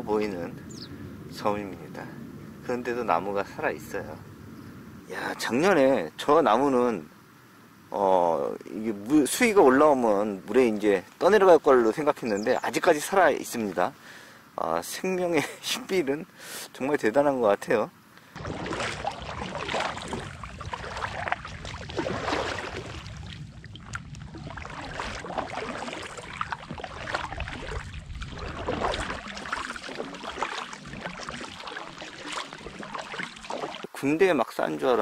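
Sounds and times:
kayak paddle splashing water: 0:18.4 - 0:34.3.

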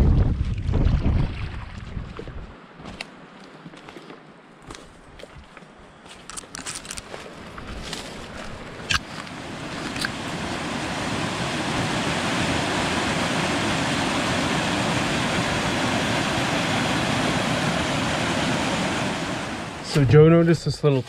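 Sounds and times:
water roaring over boulders: 0:08.7 - 0:20.4.

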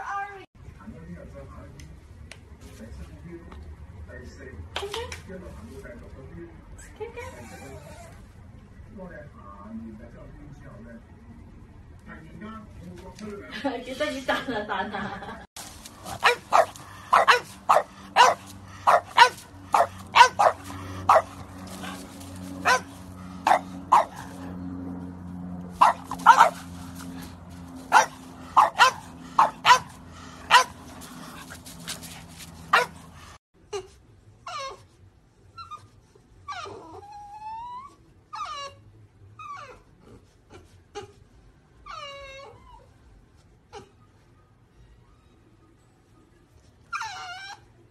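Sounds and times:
dog whining: 0:07.3 - 0:08.3, 0:36.5 - 0:38.8, 0:41.8 - 0:43.1, 0:46.9 - 0:47.9
dogs barking: 0:16.0 - 0:24.6, 0:25.7 - 0:33.4.

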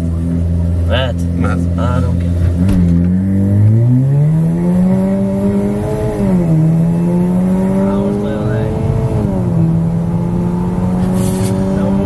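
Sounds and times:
car engine accelerating hard: 0:00.0 - 0:12.0.

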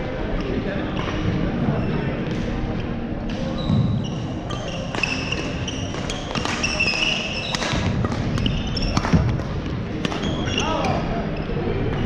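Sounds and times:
sneakers squeaking on wooden floor: 0:03.4 - 0:09.2
racket hitting shuttlecock: 0:04.5 - 0:10.6.

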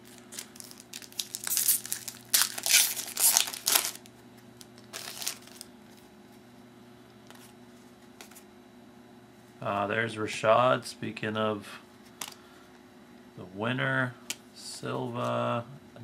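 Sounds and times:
foil wrapper crinkling and tearing: 0:00.0 - 0:04.1, 0:04.7 - 0:05.7.

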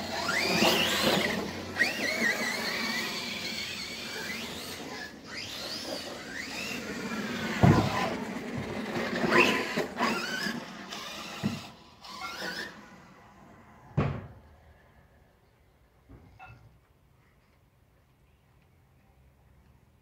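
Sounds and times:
toy car thudding: 0:00.0 - 0:12.8
electric motor whining: 0:00.0 - 0:13.2.

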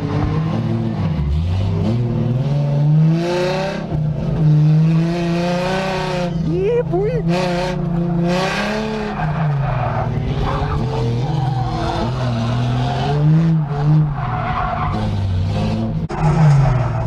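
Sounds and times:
car engine revving: 0:00.0 - 0:17.0
tires squealing on pavement: 0:08.1 - 0:17.0.

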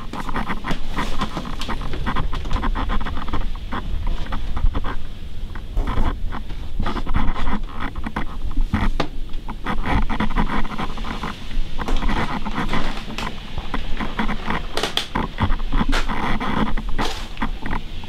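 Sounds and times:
low rumble: 0:00.0 - 0:08.8
scraping rubbing and tapping on camera: 0:00.0 - 0:18.0.

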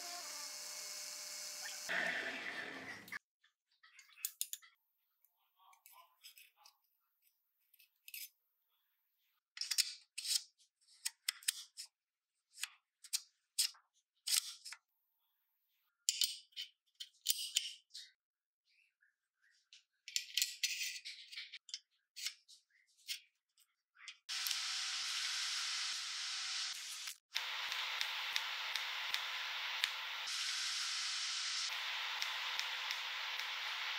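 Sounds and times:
welder arc hissing: 0:00.0 - 0:02.1, 0:24.3 - 0:33.9.

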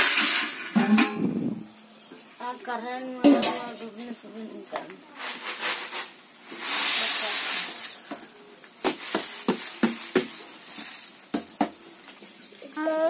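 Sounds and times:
rice grains pouring into bowl: 0:05.3 - 0:08.2.

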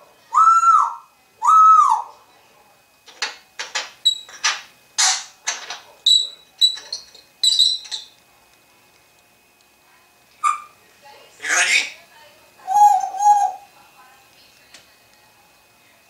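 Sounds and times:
parrot whistling: 0:00.3 - 0:02.1, 0:06.1 - 0:08.1, 0:10.4 - 0:10.8, 0:11.4 - 0:12.0, 0:12.6 - 0:13.7
parrot clicks and squeaks: 0:03.7 - 0:08.2, 0:10.4 - 0:10.7.

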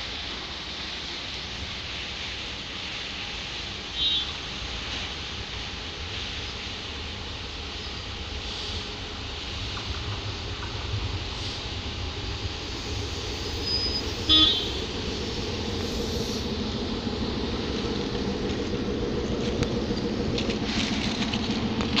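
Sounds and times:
diesel locomotive approaching: 0:00.0 - 0:22.0
train horn toot: 0:03.9 - 0:04.4, 0:13.7 - 0:14.9.

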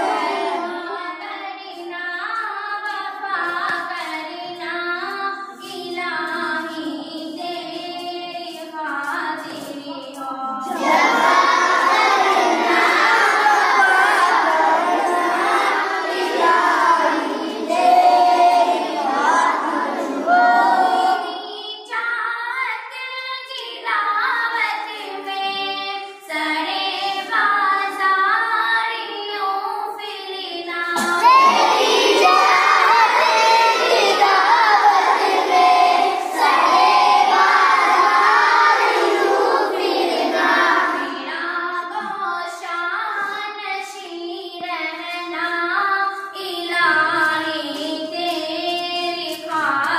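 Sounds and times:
boys singing a devotional hymn: 0:00.0 - 0:49.9.

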